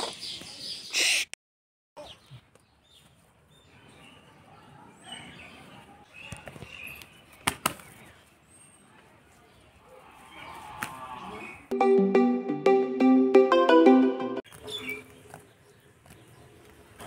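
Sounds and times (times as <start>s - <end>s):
small birds chirping: 14.5s - 17.0s.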